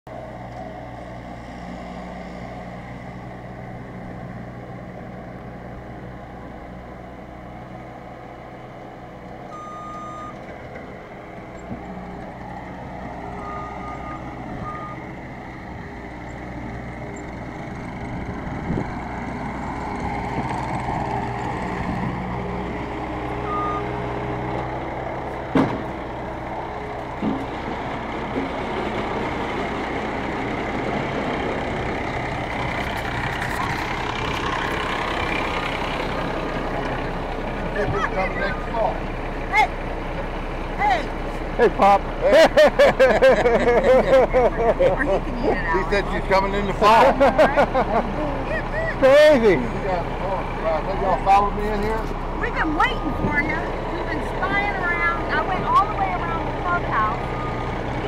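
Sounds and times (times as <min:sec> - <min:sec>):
diesel engines running: 0:00.1 - 0:58.0
backup alarm beeping: 0:09.5 - 0:10.4, 0:23.4 - 0:23.9.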